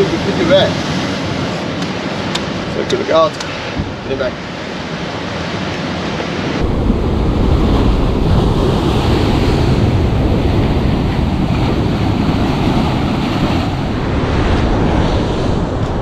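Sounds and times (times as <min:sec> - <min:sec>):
ocean surf breaking over rocks: 0:00.0 - 0:16.0
wind buffeting microphone: 0:00.0 - 0:16.0.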